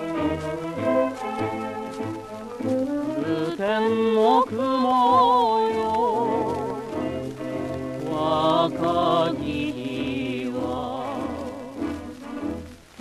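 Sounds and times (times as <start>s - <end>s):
orchestra playing melody: 0.0s - 3.6s
person singing with vibrato: 2.6s - 12.4s.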